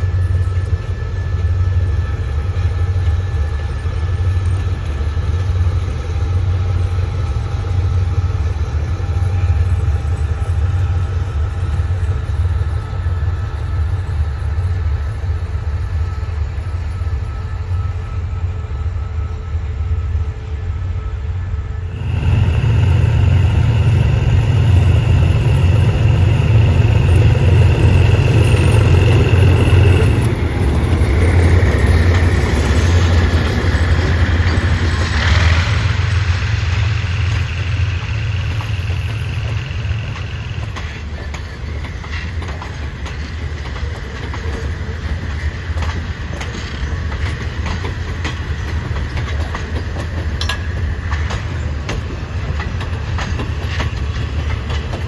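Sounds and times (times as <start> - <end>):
high steady squeal: 0.0 - 42.4
diesel locomotive engine drone: 0.0 - 55.0
wheels clicking over rail joints: 38.4 - 55.0.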